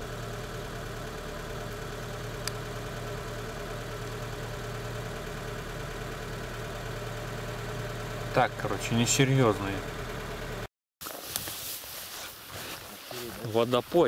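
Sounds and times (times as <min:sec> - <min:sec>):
vehicle engine idling: 0:00.0 - 0:10.7.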